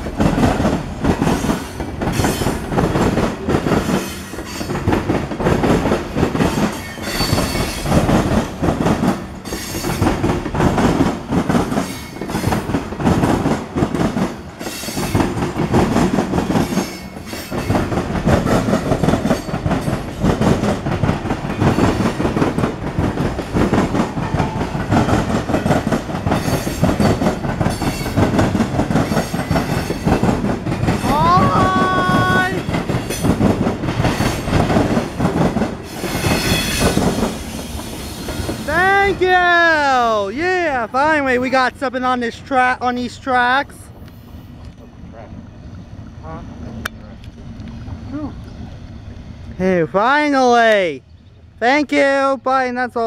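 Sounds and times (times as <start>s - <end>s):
train wheels clattering on rails: 0.0s - 40.2s.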